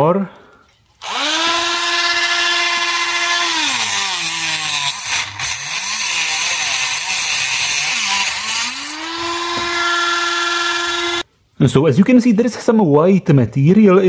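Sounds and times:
rotary tool cutting metal pipe: 0:01.0 - 0:11.2.

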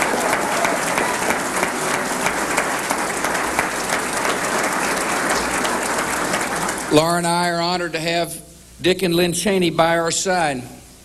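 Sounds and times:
crowd applauding: 0:00.0 - 0:07.2.

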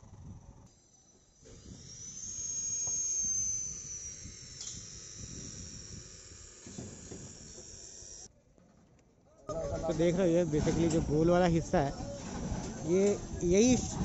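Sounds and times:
power tool motor whine: 0:00.0 - 0:08.3.

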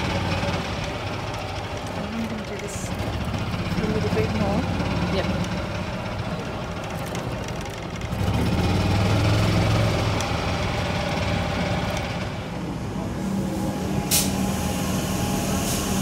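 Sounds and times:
golf cart motor hum: 0:00.0 - 0:12.2.

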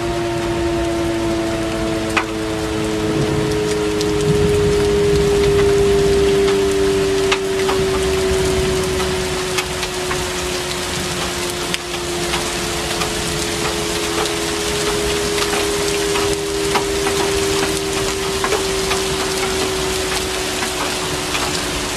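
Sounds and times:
rain falling and dripping: 0:00.0 - 0:21.9.

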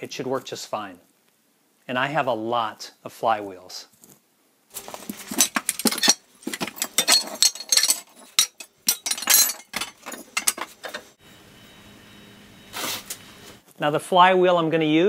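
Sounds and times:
metal wheels clanking together: 0:04.8 - 0:11.1.

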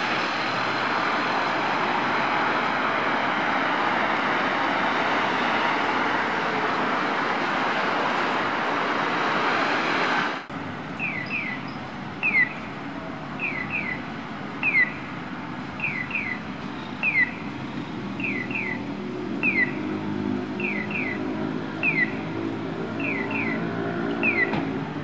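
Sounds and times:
faint street noise: 0:00.0 - 0:25.0
road traffic noise: 0:00.0 - 0:25.0
crossing signal bird-chirp tones: 0:11.0 - 0:12.8, 0:13.4 - 0:15.1, 0:15.7 - 0:19.9, 0:20.5 - 0:22.3, 0:22.9 - 0:24.6.

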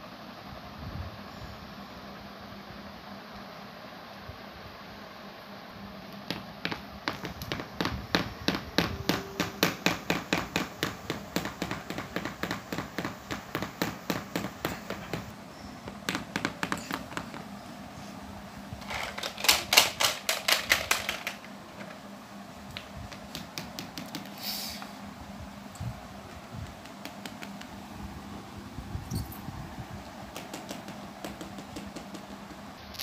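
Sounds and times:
plastic toy tapping on tile: 0:06.3 - 0:15.2, 0:23.1 - 0:24.3, 0:26.6 - 0:27.7, 0:30.3 - 0:32.6.

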